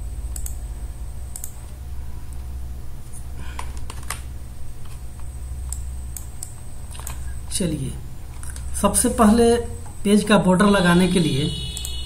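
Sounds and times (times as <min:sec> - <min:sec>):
steady low hum: 0:00.0 - 0:12.0
computer mouse clicking: 0:00.3 - 0:00.6, 0:01.3 - 0:01.8, 0:03.6 - 0:07.2.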